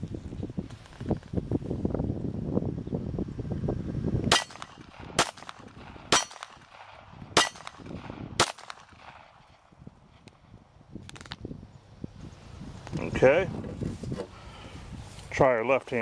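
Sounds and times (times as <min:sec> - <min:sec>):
pistol gunshots: 0:04.3 - 0:09.4.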